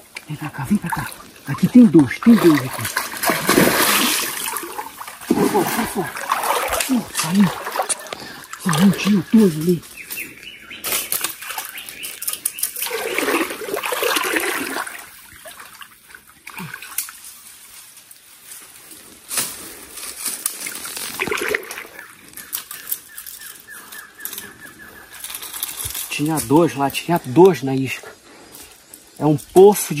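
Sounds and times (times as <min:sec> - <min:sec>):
fish thrashing in water: 0:00.7 - 0:09.6, 0:11.2 - 0:17.0, 0:20.9 - 0:22.1.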